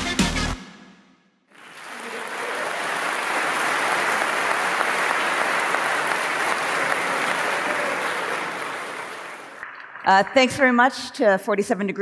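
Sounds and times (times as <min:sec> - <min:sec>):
large audience applauding: 0:01.5 - 0:10.1.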